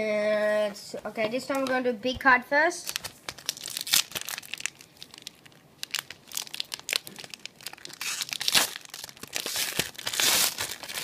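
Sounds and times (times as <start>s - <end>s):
plastic wrapper crinkling: 2.8s - 11.0s.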